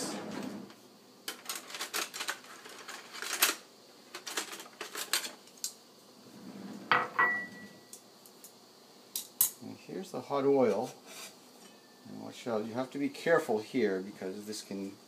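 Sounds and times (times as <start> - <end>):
utensils clattering: 1.3 - 5.7
brief ringing tone: 7.2 - 7.8.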